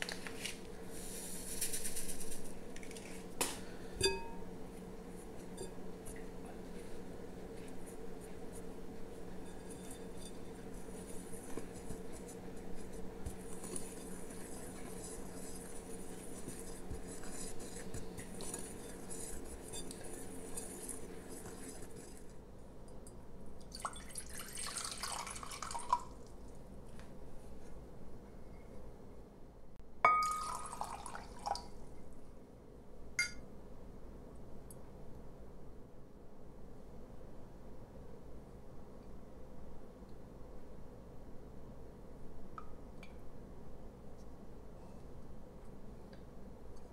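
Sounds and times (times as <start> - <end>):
steady low hum: 0.0 - 23.9
finger stirring flour in bowl: 5.1 - 22.4.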